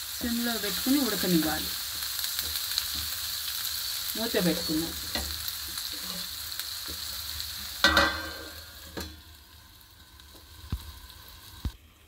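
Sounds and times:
curry sizzling in a pan: 0.0 - 12.0
steel lid clattering onto pan: 7.8 - 9.2.

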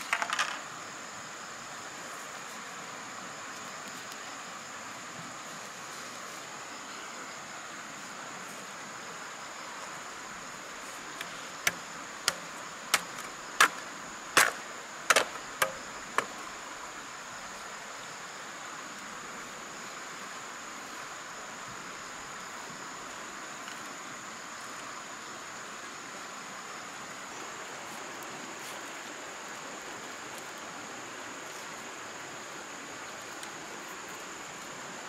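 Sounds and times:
tool chopping wood: 14.4 - 16.3.

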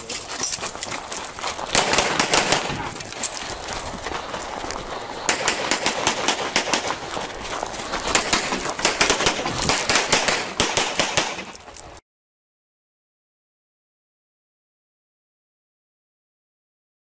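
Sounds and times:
rapid pistol fire: 1.7 - 2.9, 5.3 - 7.0, 8.1 - 11.5.

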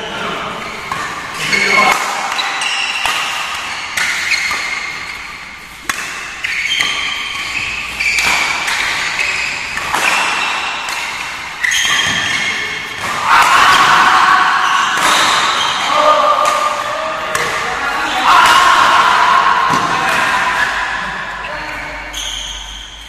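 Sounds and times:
shoes squeaking on court: 0.5 - 13.1, 14.6 - 17.5, 21.4 - 23.0
rackets striking shuttlecock: 0.9 - 14.1, 14.7 - 20.4.

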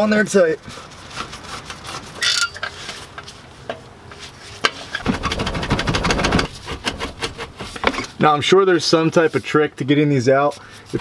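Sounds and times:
fast metallic clicks and rattles: 5.0 - 8.1.

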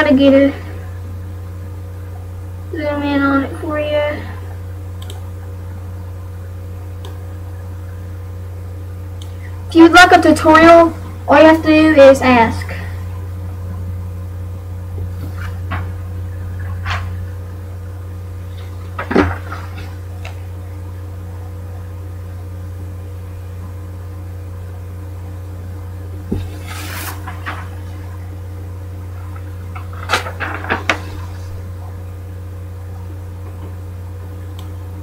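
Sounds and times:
low electrical hum: 0.0 - 35.0
quick clicks: 5.0 - 5.2
paper rustling: 26.3 - 28.1, 29.2 - 31.7.

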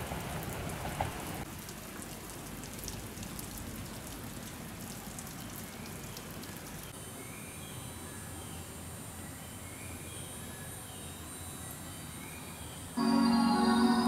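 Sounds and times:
steady rain: 0.0 - 7.0
background hiss: 0.0 - 14.0
faint high whine: 7.9 - 14.0.

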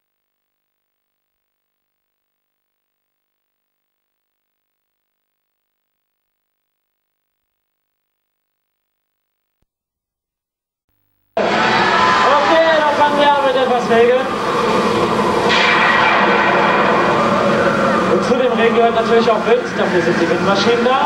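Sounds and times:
faint steady hum and hiss: 0.0 - 9.7, 10.9 - 11.6.

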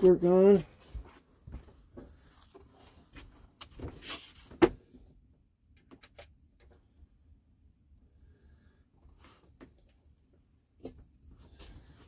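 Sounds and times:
ductwork rustling and scraping: 0.0 - 4.6.

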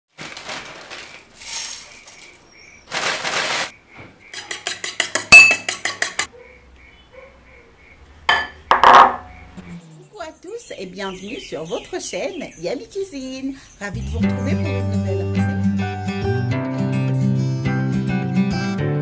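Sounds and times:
rustling: 0.1 - 3.8
fork beating eggs in bowl: 4.4 - 6.3.

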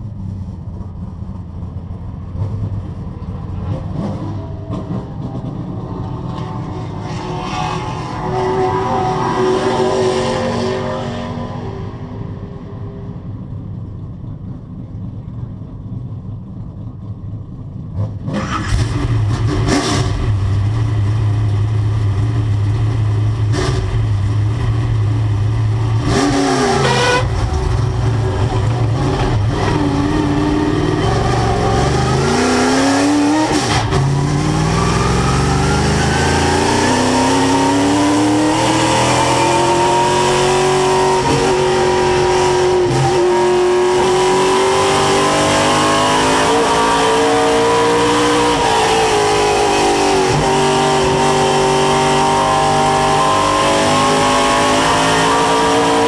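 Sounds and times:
race car engine revving: 25.9 - 56.0.

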